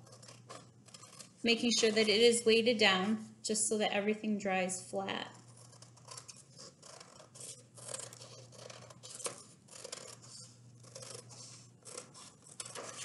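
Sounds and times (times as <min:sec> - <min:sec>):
scissors snipping paper: 0:00.0 - 0:02.2, 0:05.4 - 0:13.0.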